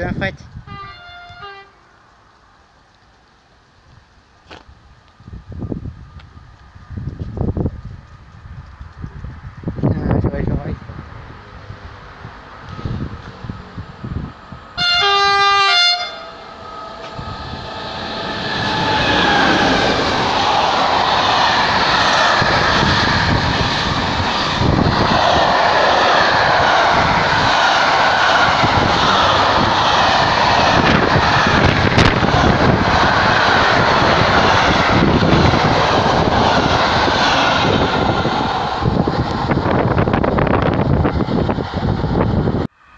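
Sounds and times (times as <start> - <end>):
train horn blast: 0.7 - 1.8, 14.8 - 16.5
train wheels on rails: 2.0 - 9.9, 16.3 - 42.7.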